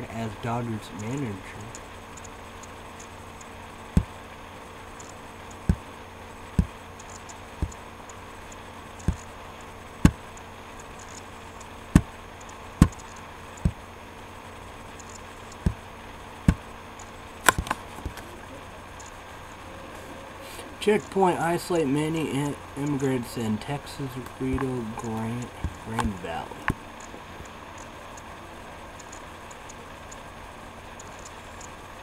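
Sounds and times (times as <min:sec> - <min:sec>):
low hum: 0:00.0 - 0:32.0
computer mouse clicking: 0:06.6 - 0:08.2, 0:09.0 - 0:09.3, 0:11.0 - 0:11.3, 0:12.0 - 0:13.8, 0:15.0 - 0:15.8, 0:29.0 - 0:29.8, 0:31.0 - 0:31.7.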